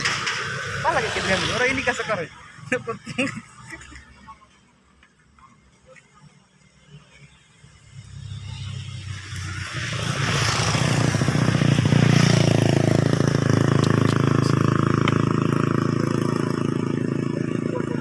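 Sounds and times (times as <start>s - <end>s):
vehicle engine running: 9.9s - 18.0s.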